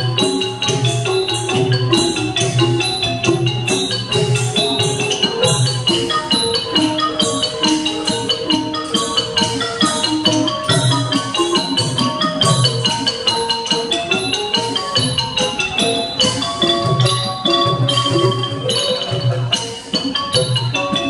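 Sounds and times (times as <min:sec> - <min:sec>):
xylophone rapid runs: 0:00.0 - 0:21.0.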